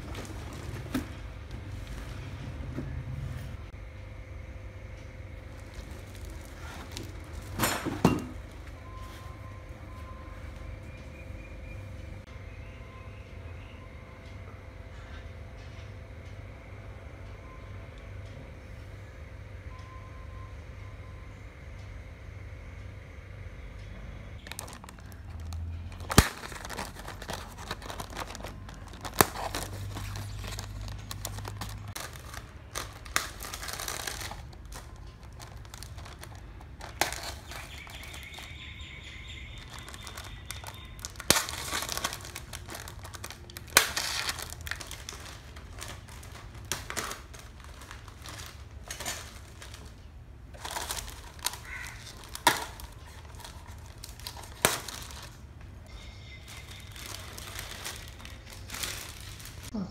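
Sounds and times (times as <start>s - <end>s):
packaging crinkling and rustling: 0.0s - 2.3s, 5.4s - 8.6s, 24.4s - 59.7s.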